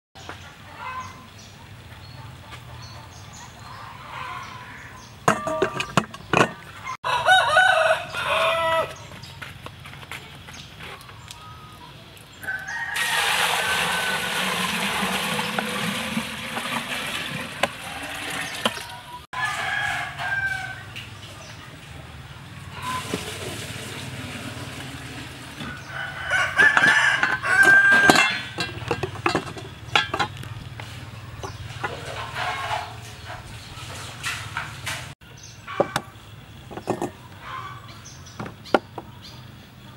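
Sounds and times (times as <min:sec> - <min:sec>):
rooster crowing: 0:07.0 - 0:09.0, 0:12.4 - 0:14.6, 0:19.4 - 0:21.0, 0:25.6 - 0:28.6
chicken clucking: 0:36.8 - 0:38.0.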